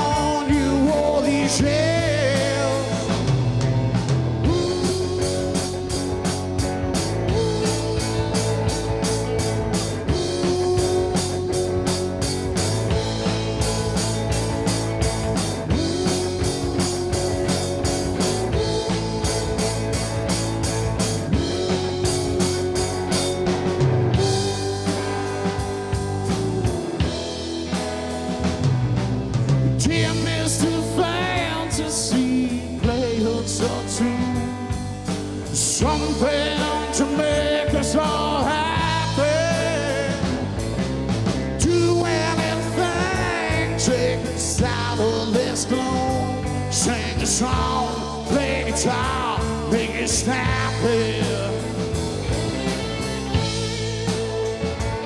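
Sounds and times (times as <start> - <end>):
rock band playing slow song: 0.0 - 55.0.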